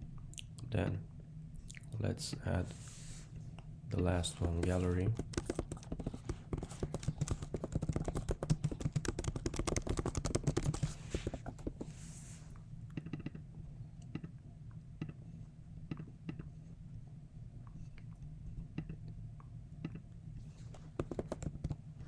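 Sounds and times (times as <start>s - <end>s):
fast typing on keyboard: 4.6s - 11.7s, 21.0s - 21.8s.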